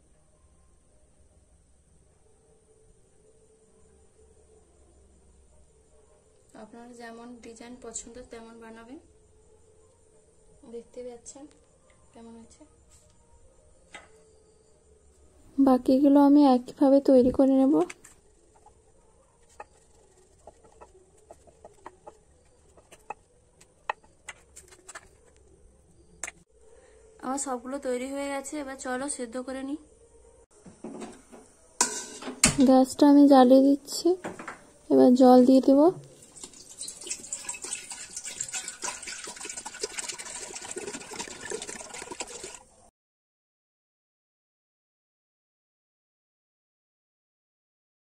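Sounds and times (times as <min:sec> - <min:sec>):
water pouring into metal pot: 0:36.1 - 0:42.9.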